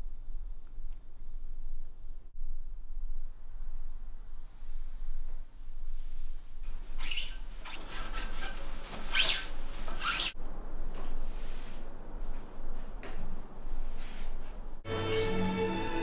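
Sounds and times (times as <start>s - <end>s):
rubbing and scraping: 5.8s - 10.4s.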